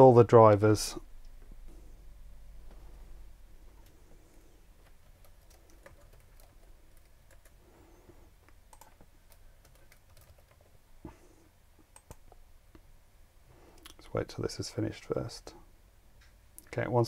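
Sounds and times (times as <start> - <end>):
computer keyboard typing: 3.8 - 7.6, 8.4 - 10.8, 11.9 - 12.4.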